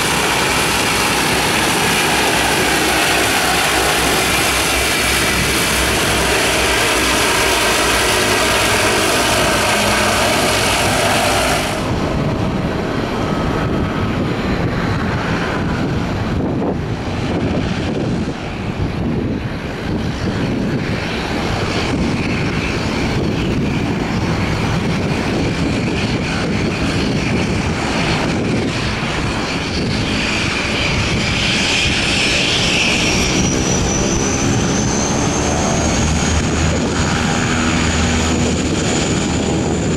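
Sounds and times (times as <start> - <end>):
high whine rising: 0.0 - 15.2, 28.9 - 39.9
turboprop engines droning: 0.0 - 39.9.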